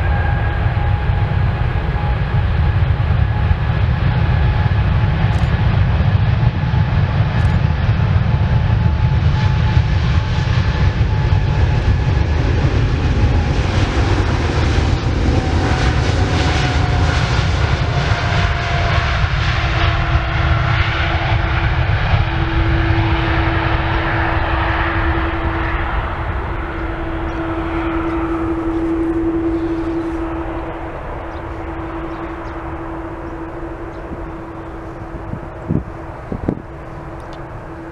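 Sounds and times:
jet engine rumble and whine: 0.0s - 37.9s
steady hum: 20.9s - 37.9s.

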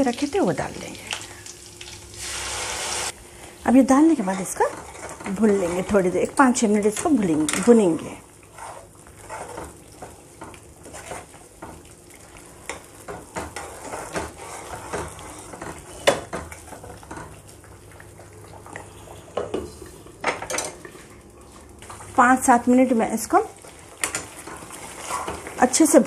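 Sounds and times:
faint sizzle: 0.0s - 26.0s.

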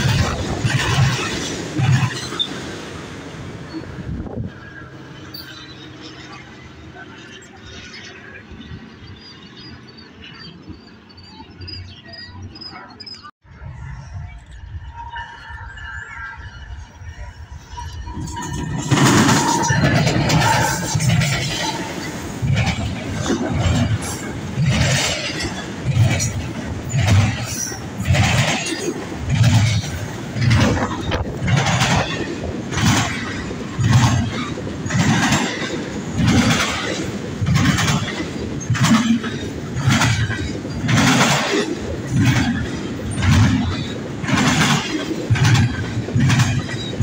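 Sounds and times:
train wheels clacking over rail joints: 0.0s - 2.9s, 18.3s - 47.0s
low train rumble: 0.0s - 47.0s.

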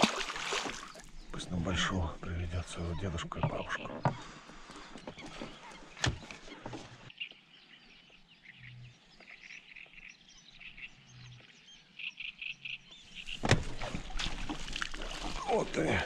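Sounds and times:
loud knock or splash: 0.0s - 0.9s.

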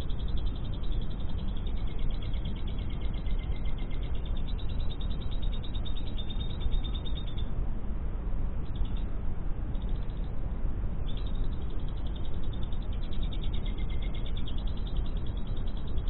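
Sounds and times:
lovebird chattering trill: 0.0s - 7.5s, 11.0s - 16.0s
steady low rumble: 0.0s - 16.0s.

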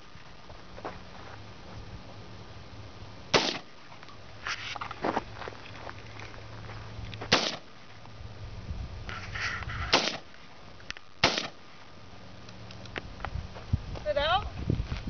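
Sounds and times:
rifle shots: 3.3s - 3.7s, 7.3s - 7.7s, 9.9s - 10.3s, 11.2s - 11.6s.

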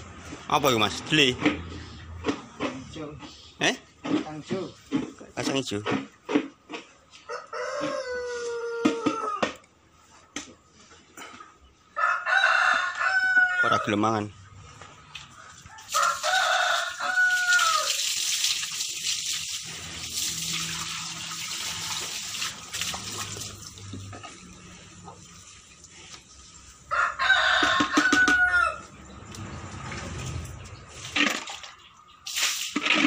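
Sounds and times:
rooster crowing: 7.3s - 9.5s, 12.0s - 14.0s, 15.4s - 18.0s, 26.9s - 28.9s
water running from hose into trough: 15.7s - 28.2s, 29.3s - 33.0s.

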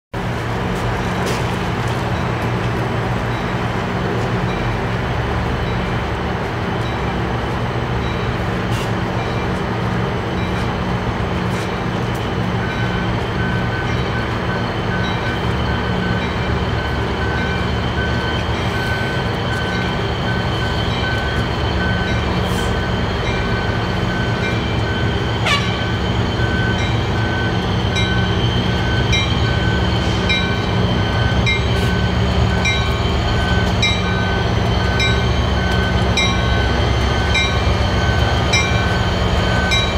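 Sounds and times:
diesel locomotive running: 0.1s - 39.9s
locomotive bell ringing: 4.4s - 4.9s, 11.7s - 39.9s.

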